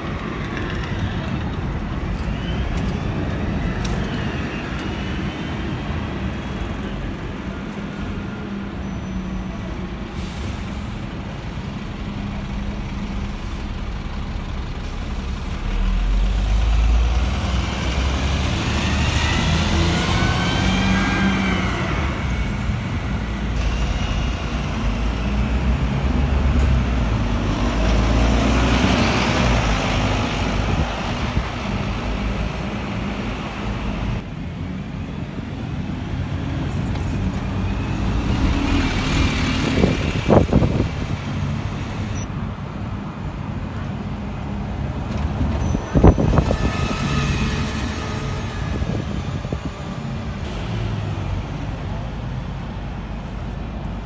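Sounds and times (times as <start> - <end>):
diesel bus engine drone: 0.0 - 54.0
rising and falling bus whine: 45.9 - 54.0.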